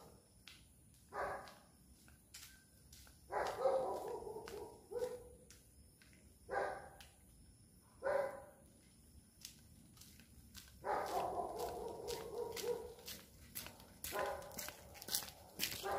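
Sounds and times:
dog barking: 1.1s - 1.6s, 3.3s - 5.3s, 6.5s - 7.0s, 8.0s - 8.6s, 10.8s - 13.0s, 14.1s - 14.8s.

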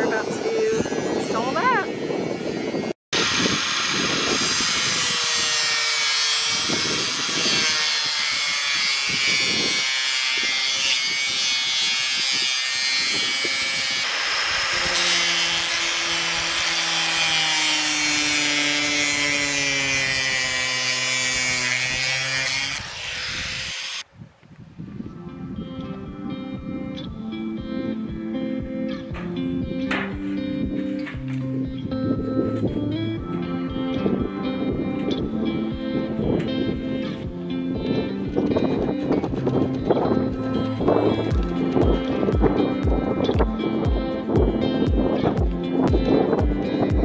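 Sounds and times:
grinder motor whine: 0.3s - 24.0s.

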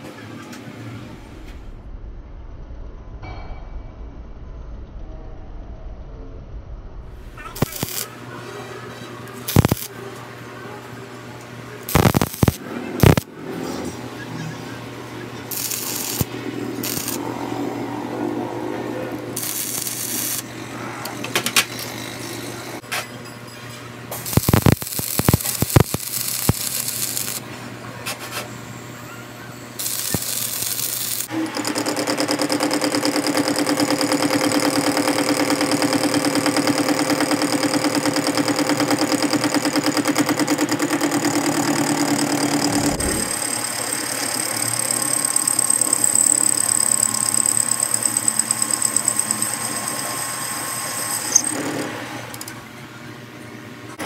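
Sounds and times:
arc welding crackling: 7.4s - 8.2s, 9.3s - 10.0s, 11.8s - 13.3s, 15.5s - 17.3s, 19.3s - 20.6s, 24.1s - 27.4s, 29.8s - 31.3s, 42.7s - 51.6s
metal lathe whining: 15.4s - 22.8s, 29.8s - 52.6s.

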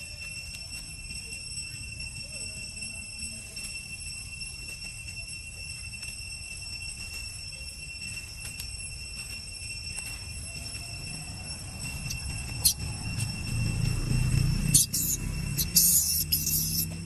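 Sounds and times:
high-pitched ringing tone: 0.0s - 17.0s
faint short chirps: 14.7s - 17.0s.

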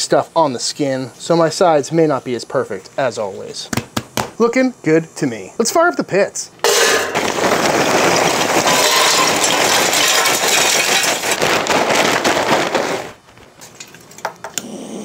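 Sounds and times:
charcoal clattering into metal: 6.6s - 14.3s.

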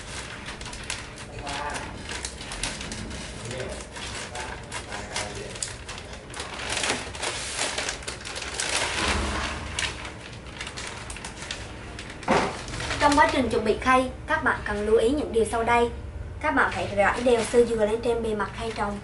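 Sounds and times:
coir pouring into foam tray: 0.0s - 13.1s
plastic bag crinkling: 0.0s - 13.8s, 16.6s - 19.0s.

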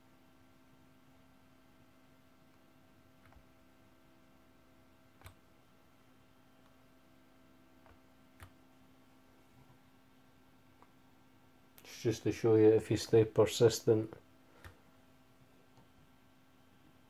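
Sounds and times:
faint hum: 0.0s - 17.0s
laptop clicks: 5.2s - 5.4s.

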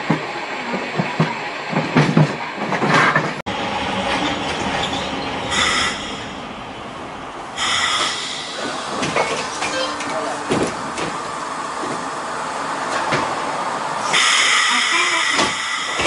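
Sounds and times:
tram running on rails: 0.0s - 16.0s
high wheel squeals: 4.1s - 6.4s, 7.6s - 10.4s, 14.1s - 16.0s.

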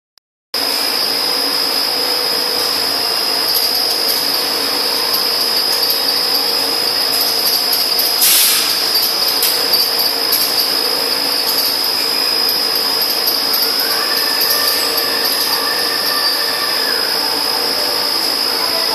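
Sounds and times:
machine high whine: 0.6s - 18.9s
machine low hum: 0.6s - 18.9s
short hiss: 8.2s - 8.8s.

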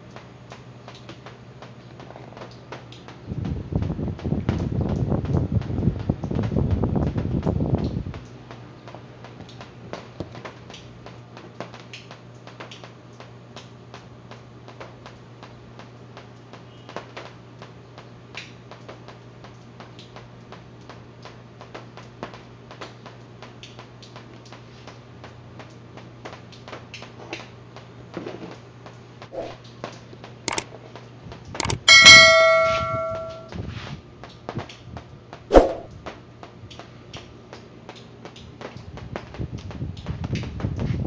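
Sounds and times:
sharp knocks: 31.6s - 33.4s
wind-up timer ticking: 31.6s - 33.4s
timer bell ding: 31.6s - 33.5s.

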